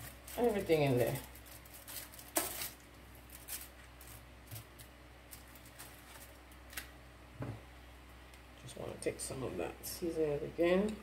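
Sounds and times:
paper and foil rustling: 0.0 - 6.9.

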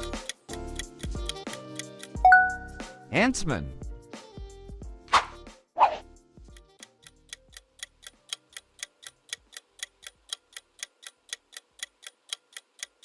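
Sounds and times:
clock ticking: 0.0 - 2.3, 6.5 - 13.0.

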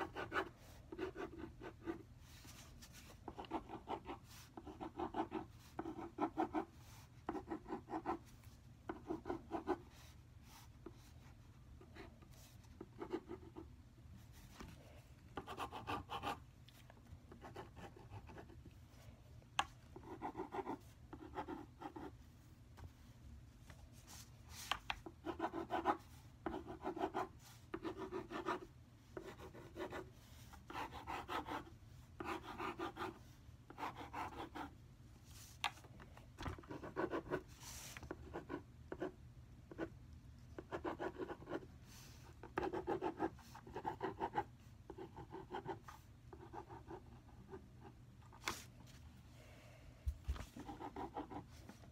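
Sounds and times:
pen scribbling on paper: 15.4 - 16.4.

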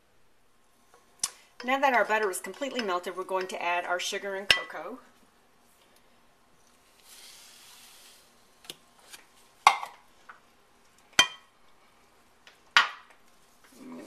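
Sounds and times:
sugar pouring into a saucepan: 7.0 - 8.3.

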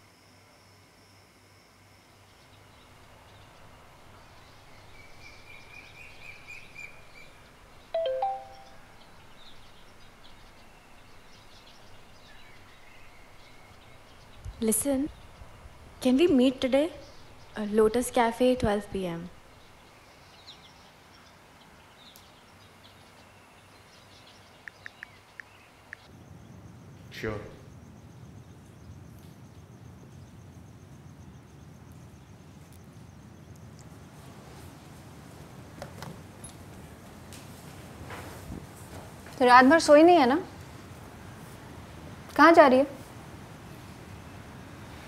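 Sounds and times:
birds chirping faintly: 2.0 - 45.0
phone notification chime: 8.0 - 8.8.

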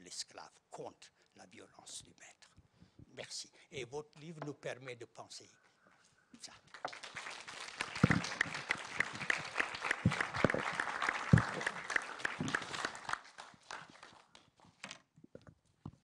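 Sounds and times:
audience applauding: 6.7 - 14.5.

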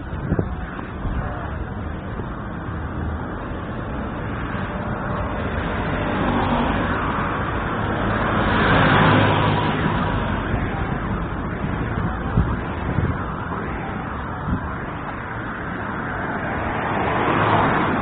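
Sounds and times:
road traffic noise: 0.0 - 18.0
motor vehicle passing: 4.4 - 10.9.

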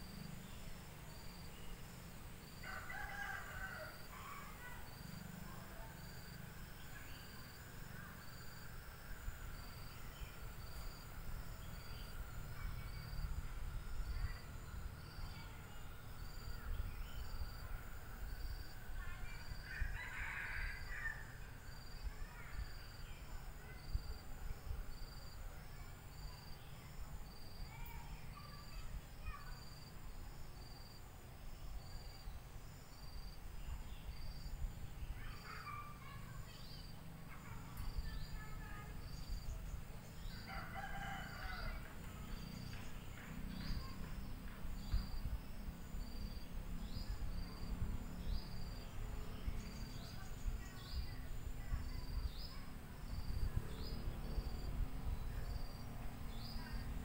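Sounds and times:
crickets chirping: 0.0 - 57.0
rooster crowing: 2.6 - 4.0, 19.7 - 21.3, 40.4 - 41.9.

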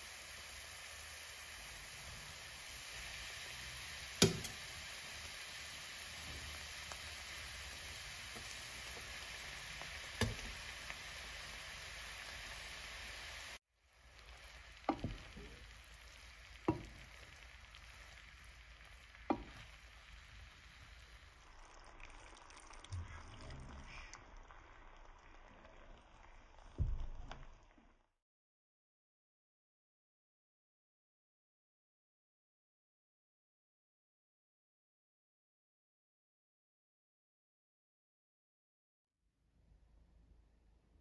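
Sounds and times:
mushrooms sizzling in a pan: 0.0 - 28.0
spatula knocking against pan: 14.9 - 15.4, 16.7 - 17.0, 19.3 - 19.6.

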